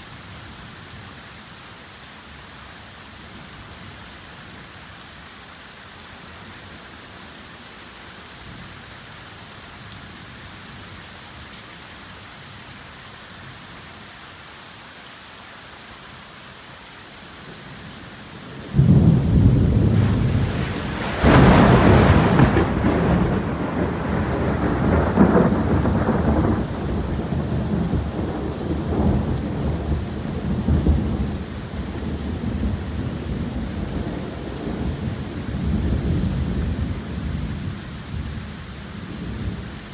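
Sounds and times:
heavy rain falling: 0:00.0 - 0:39.9
thunder cracking and rumbling: 0:18.5 - 0:38.3.

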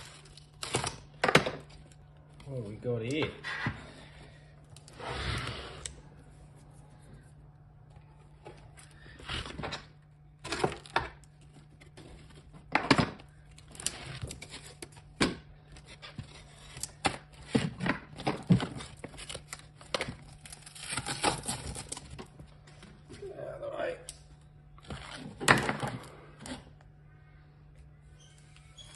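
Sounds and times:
plastic sheet crinkling and tearing: 0:18.3 - 0:22.3.

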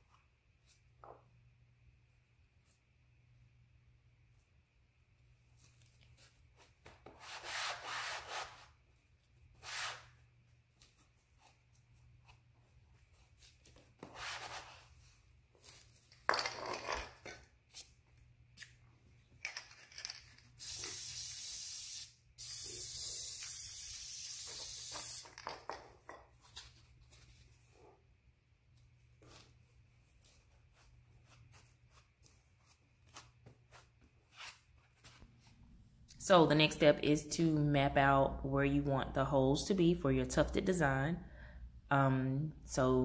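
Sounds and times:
aerosol spray hissing: 0:20.6 - 0:25.3.

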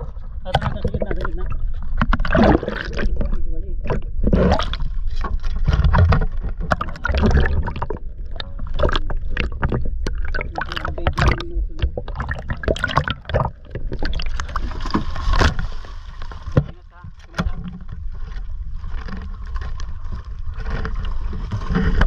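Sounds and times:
low rumble: 0:00.0 - 0:22.0
water sloshing and gurgling: 0:00.0 - 0:22.0.

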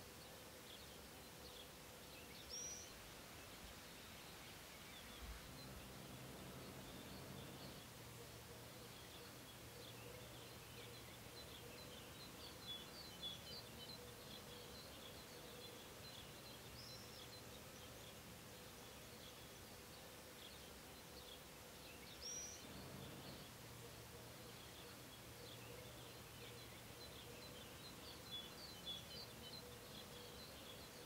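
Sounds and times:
songbirds chirping: 0:00.0 - 0:31.0
steady low hum: 0:05.0 - 0:12.3, 0:22.6 - 0:28.2.

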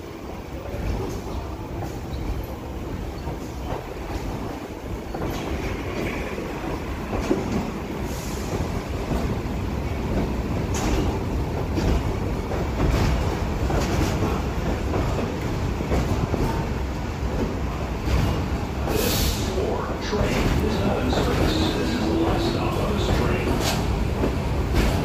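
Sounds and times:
subway train rumbling: 0:00.0 - 0:25.0
wheel clacks over rail joints: 0:08.5 - 0:19.0.

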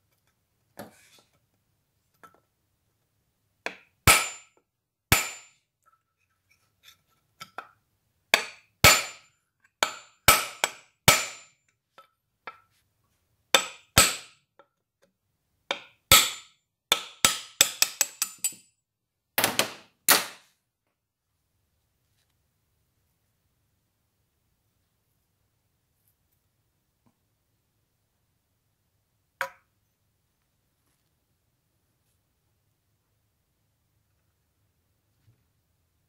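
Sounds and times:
hammer tapping metal: 0:03.7 - 0:04.5, 0:05.1 - 0:05.5, 0:08.4 - 0:11.6, 0:13.6 - 0:14.3, 0:15.7 - 0:18.7.

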